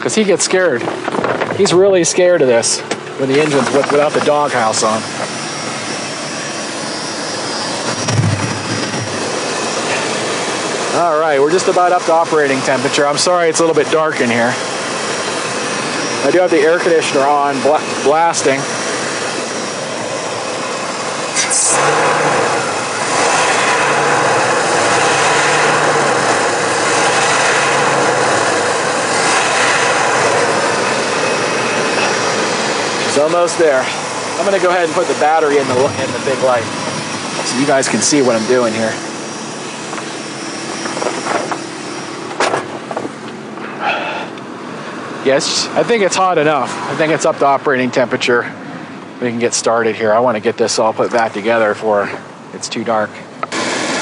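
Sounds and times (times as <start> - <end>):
air conditioner blowing: 0.0 - 54.0
engine idling: 0.0 - 54.0.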